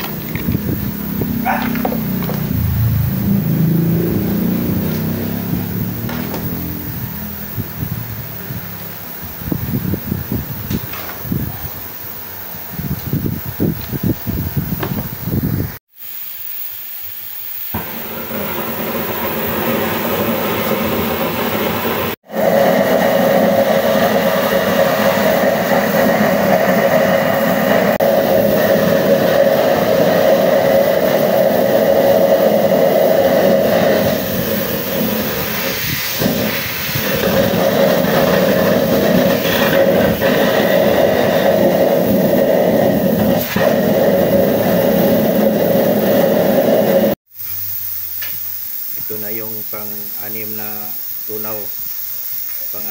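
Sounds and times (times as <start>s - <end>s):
blast burner hissing: 0.0s - 52.9s.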